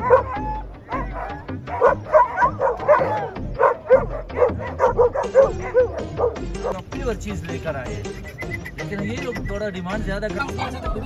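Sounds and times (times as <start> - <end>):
dog barking rapidly: 0.0 - 6.8.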